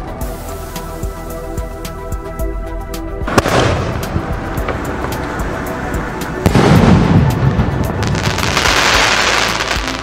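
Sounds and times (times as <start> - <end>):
firework launch bang: 3.3 - 4.8, 6.4 - 10.0
firework shell hissing: 8.0 - 10.0.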